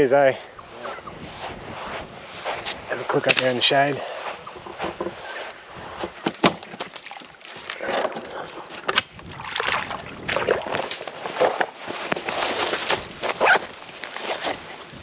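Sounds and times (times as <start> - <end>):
water sloshing and splashing: 4.7 - 14.9.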